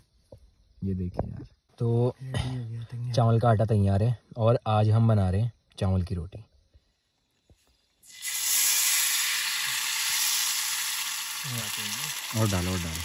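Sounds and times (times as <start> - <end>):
batter sizzling in a hot pan: 8.0 - 13.0.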